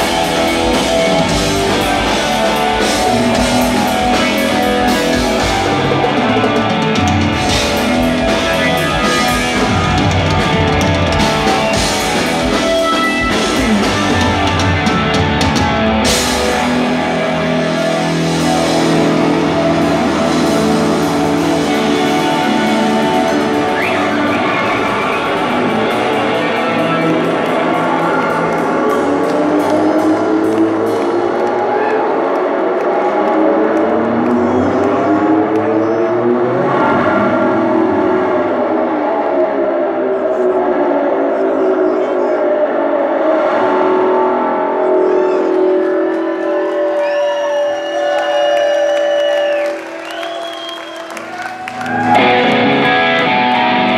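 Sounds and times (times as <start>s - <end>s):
live rock band playing: 0.0s - 31.7s, 50.9s - 53.9s
bass slide notes gliding: 42.5s - 46.6s.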